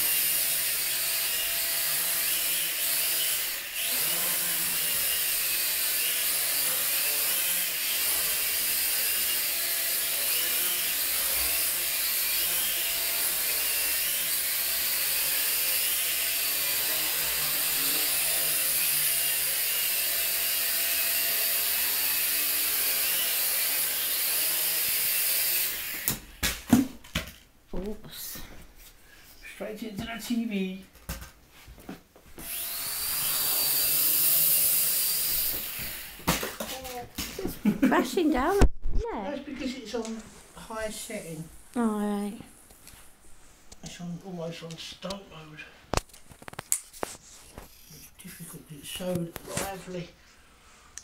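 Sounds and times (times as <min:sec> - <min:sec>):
toy quadcopter motors buzzing: 0:00.0 - 0:26.3, 0:32.4 - 0:37.0, 0:47.5 - 0:48.1.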